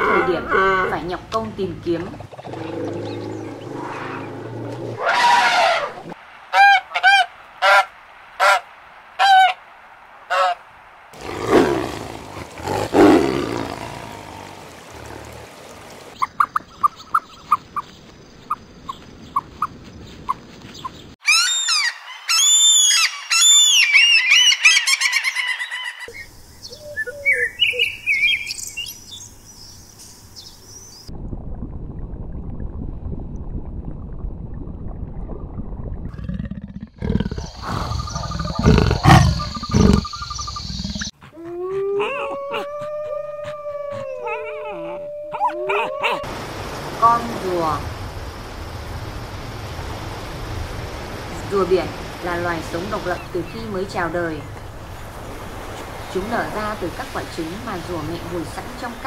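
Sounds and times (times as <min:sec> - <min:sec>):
low rough calls: 0:00.0 - 0:16.9, 0:36.1 - 0:59.0
high bird chirping: 0:37.3 - 0:41.1.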